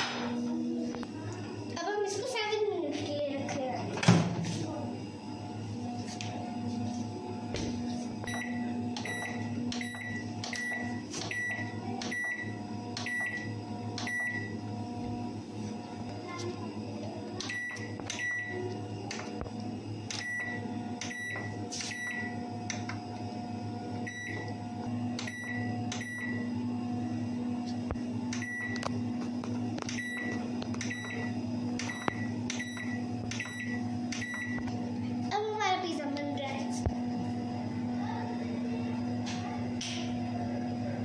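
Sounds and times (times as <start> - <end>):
steady low hum: 0.0 - 41.0
microwave control panel beeping: 8.2 - 14.7, 17.4 - 19.4, 20.0 - 23.0, 23.9 - 26.7, 27.9 - 29.2, 29.8 - 34.8.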